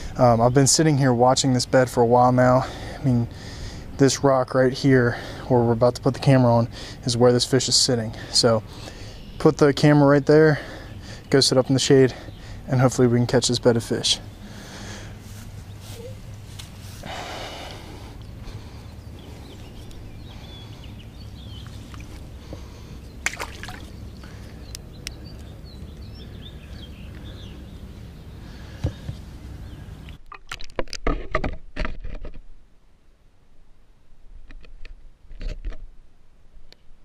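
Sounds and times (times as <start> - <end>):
low outdoor rumble: 0.0 - 30.2
faint chirping: 18.1 - 30.2.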